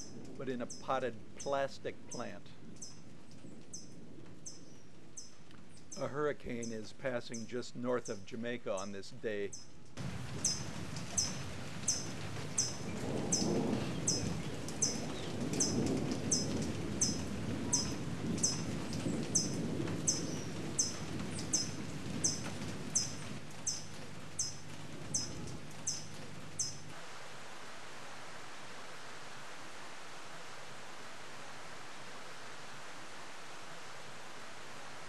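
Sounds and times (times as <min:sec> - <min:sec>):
wind and rain rumble: 0:00.0 - 0:35.0
flat hiss: 0:26.8 - 0:35.0.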